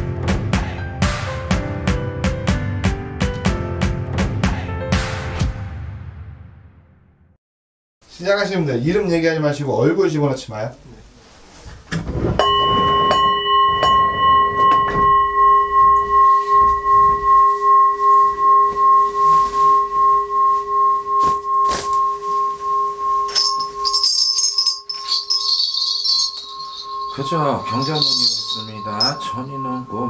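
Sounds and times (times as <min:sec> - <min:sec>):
singing bowl ringing: 0:12.4 - 0:30.0
small bells jingling: 0:12.5 - 0:30.0.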